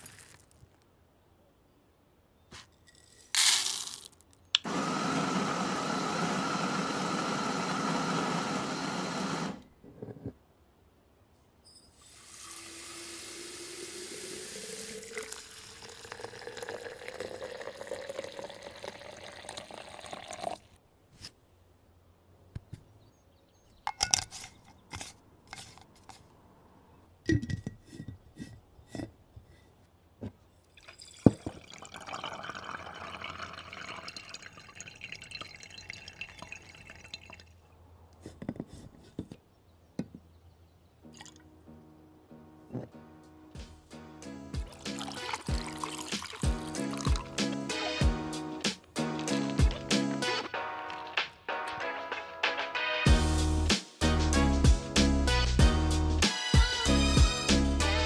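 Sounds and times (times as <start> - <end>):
water pouring into glass jar: 3.3 - 4.1, 12.0 - 20.8, 30.7 - 37.6, 44.6 - 47.4
liquid running: 12.0 - 20.7, 30.8 - 37.5, 44.6 - 47.4
glass jar clinks and clicks: 23.9 - 25.8, 30.8 - 37.5.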